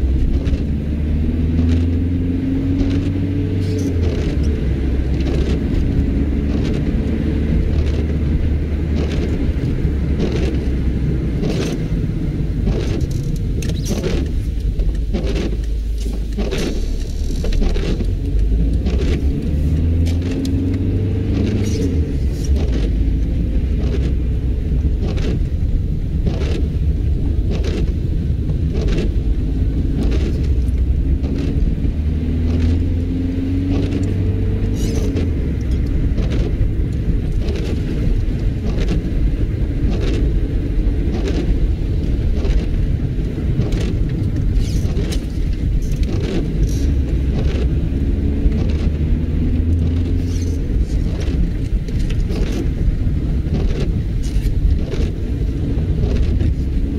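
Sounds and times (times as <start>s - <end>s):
car engine and road rumble: 0.0s - 56.9s
windscreen wipers sweeping: 0.0s - 56.9s.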